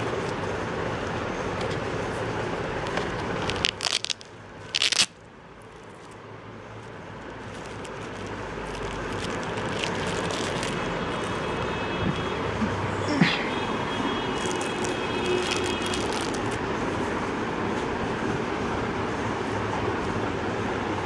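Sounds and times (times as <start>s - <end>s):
mesh case crackling: 2.8s - 6.2s, 6.8s - 11.4s, 14.4s - 16.6s.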